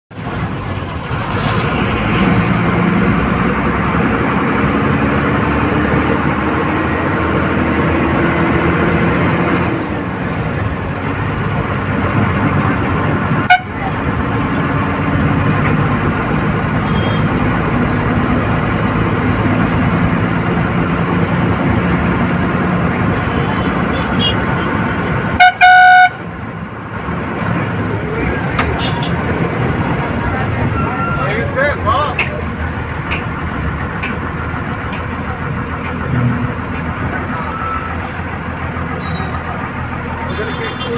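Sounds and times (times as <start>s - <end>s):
diesel bus engine accelerating: 0.1s - 40.9s
bus horn blast: 13.4s - 14.0s, 16.8s - 17.3s, 23.3s - 24.8s, 25.4s - 26.3s, 28.7s - 29.2s, 40.2s - 40.9s.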